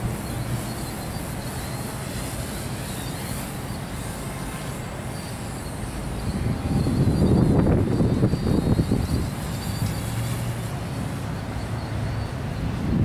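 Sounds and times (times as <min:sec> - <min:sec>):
quadcopter motors whining: 0:00.2 - 0:12.3
wind buffeting microphone: 0:06.2 - 0:10.4, 0:12.6 - 0:13.0.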